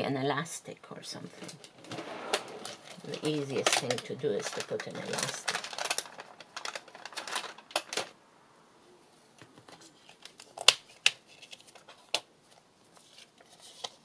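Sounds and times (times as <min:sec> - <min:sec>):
paper rustling: 0:01.8 - 0:08.1, 0:09.5 - 0:14.0.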